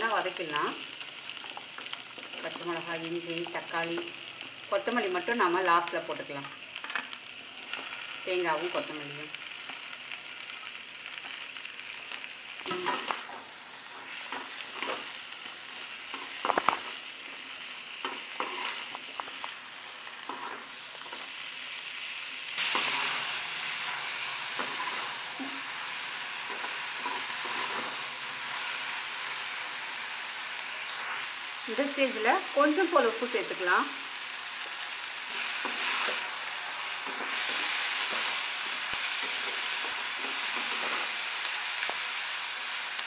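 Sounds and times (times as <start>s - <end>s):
vegetables sizzling in a pan: 0.0s - 43.0s
metal spatula scraping a pan: 18.0s - 19.0s, 22.6s - 25.6s, 26.4s - 28.0s.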